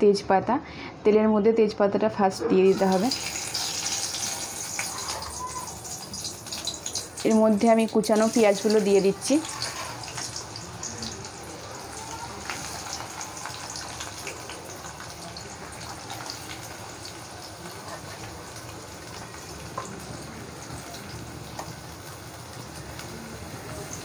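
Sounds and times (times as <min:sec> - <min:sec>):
onions sizzling in hot oil: 0:02.7 - 0:24.0.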